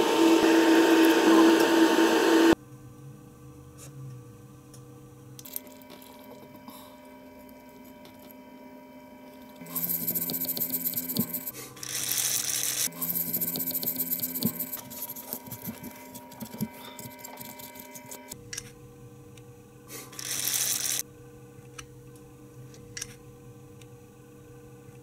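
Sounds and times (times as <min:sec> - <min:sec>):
cotton swab scratchy rubbing: 0:13.3 - 0:18.0.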